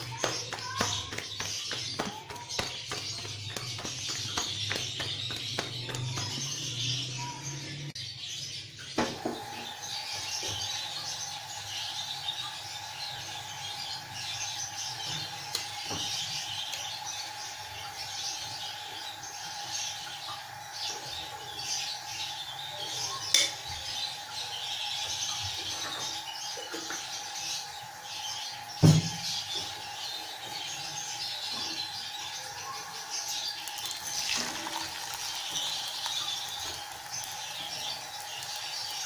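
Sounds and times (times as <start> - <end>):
dough sizzling on hot griddle: 9.0 - 39.0.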